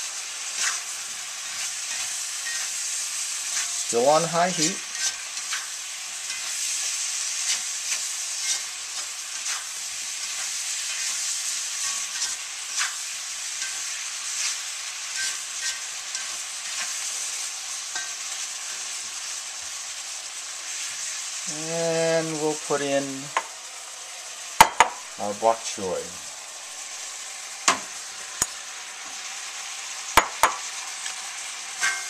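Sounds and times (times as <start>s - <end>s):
food sizzling in a wok: 0.0s - 32.0s
utensil clacking against wok: 31.8s - 32.0s.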